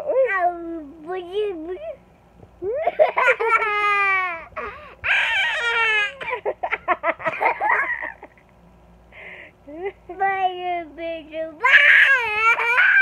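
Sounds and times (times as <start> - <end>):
child laughing: 2.6 - 8.4, 11.6 - 13.0
child squealing: 5.0 - 6.2, 11.6 - 13.0.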